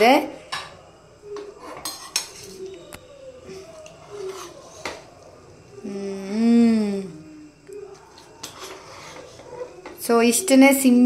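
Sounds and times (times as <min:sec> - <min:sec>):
ladle scraping metal pot: 0:04.0 - 0:05.0, 0:08.1 - 0:10.0.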